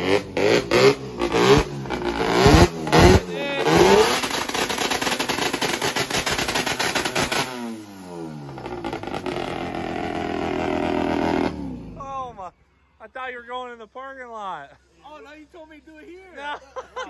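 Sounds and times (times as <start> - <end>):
van engine revving hard: 0.0 - 12.0.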